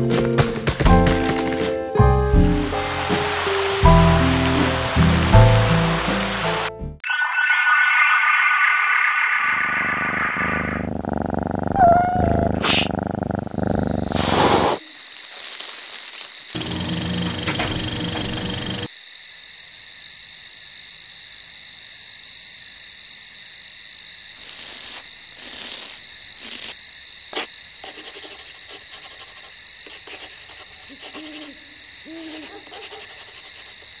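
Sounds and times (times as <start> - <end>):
insects trilling: 2.6 - 6.6, 7.2 - 34.0
low hoot-like calls: 11.7 - 12.9.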